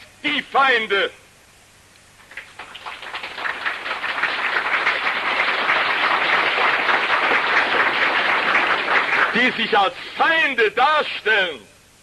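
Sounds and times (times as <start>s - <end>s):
audience applause: 2.2s - 9.9s.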